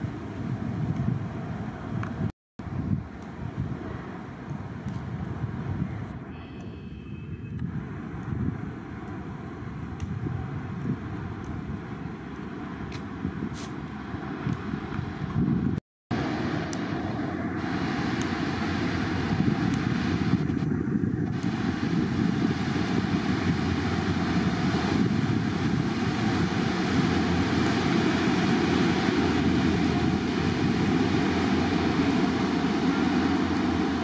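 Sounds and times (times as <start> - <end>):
rushing bow wave and wake: 9.6 - 34.0
boat engine drone: 16.1 - 34.0.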